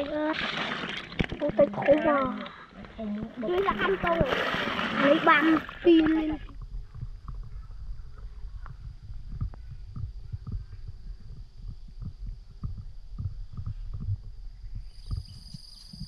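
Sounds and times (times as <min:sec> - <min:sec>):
steady low rumble: 0:05.2 - 0:16.0.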